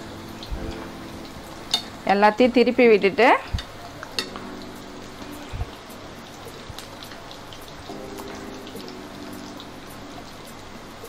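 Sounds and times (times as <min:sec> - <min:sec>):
deep-frying sizzle in oil: 0:00.0 - 0:11.0.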